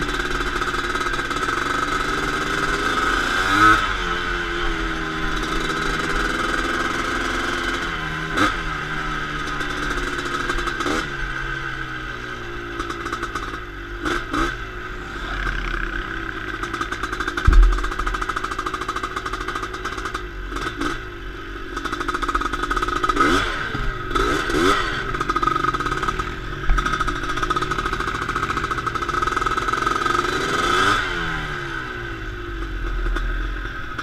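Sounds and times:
quad bike engine revving: 0.0 - 34.0
short knocks: 17.4 - 18.2.

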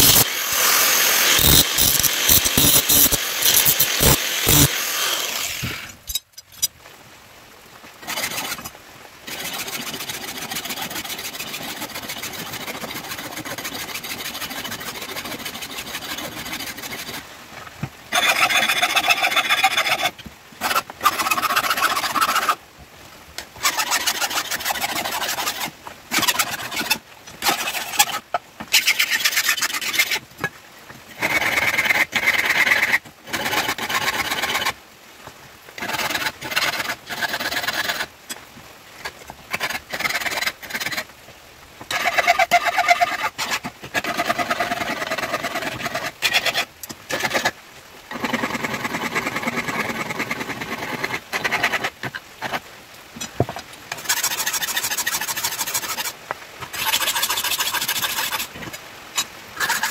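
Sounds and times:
angle grinder cutting steel: 0.0 - 6.2
file scraping steel blade: 0.0 - 6.7, 9.3 - 17.2, 18.1 - 22.6, 23.6 - 28.2, 28.8 - 30.2, 53.9 - 56.1, 56.7 - 58.5, 59.2 - 59.9.

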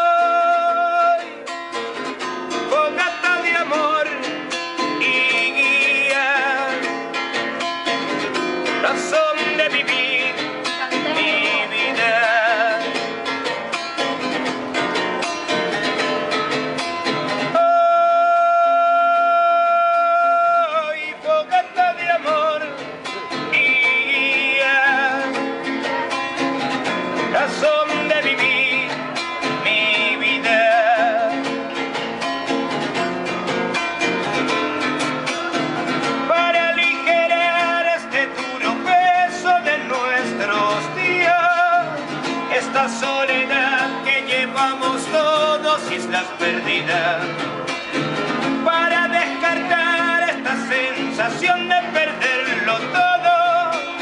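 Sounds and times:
acoustic guitar playing: 0.0 - 54.0
man singing with vibrato: 0.0 - 54.0.

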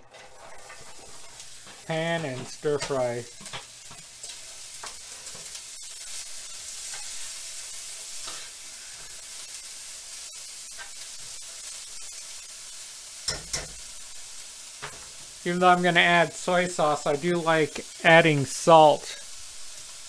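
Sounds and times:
vegetables sizzling in a frying pan: 0.0 - 20.0.

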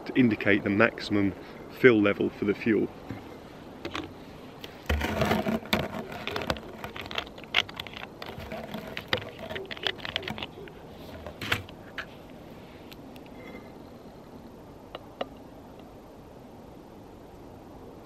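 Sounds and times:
plastic screw cap clicks and scrapes: 3.8 - 12.1.

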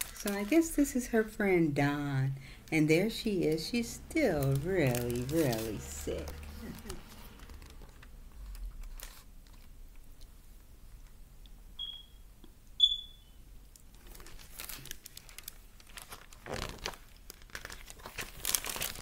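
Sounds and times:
book pages rustling: 3.7 - 9.8, 14.0 - 19.0
short high-pitched chirps: 11.8 - 12.2, 12.8 - 13.4.

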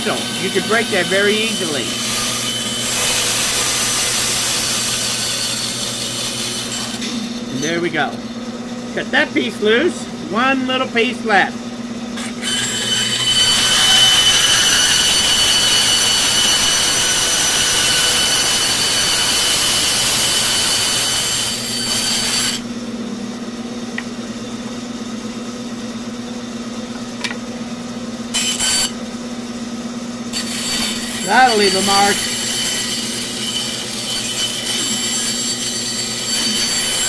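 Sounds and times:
bandsaw cutting wood: 0.0 - 8.2, 12.2 - 22.7, 28.3 - 29.0, 30.3 - 37.0
bandsaw running unloaded: 30.3 - 37.0.

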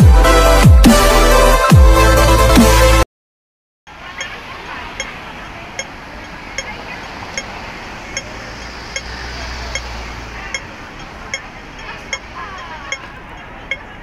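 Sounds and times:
city traffic: 3.9 - 14.0
passing voices: 3.9 - 14.0
crossing signal ticking: 4.0 - 14.0.

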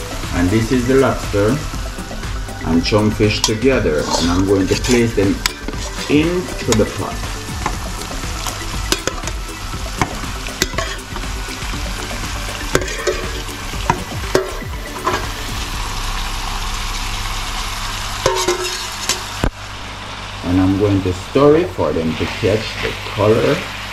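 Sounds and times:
sauce sizzling in a pan: 0.0 - 23.9
metal spatula scraping metal bowl: 3.4 - 7.0, 10.6 - 11.2, 12.7 - 15.3, 18.2 - 19.3.

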